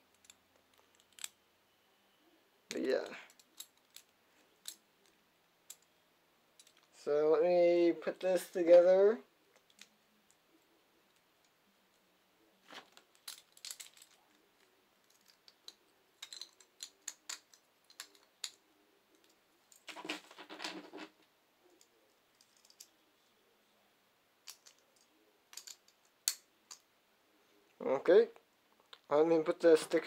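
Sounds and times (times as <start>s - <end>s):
small plastic parts clicking: 0.1s - 1.4s, 2.7s - 5.9s, 6.6s - 7.0s, 9.5s - 10.4s, 12.6s - 21.0s, 21.8s - 22.9s, 24.4s - 26.8s.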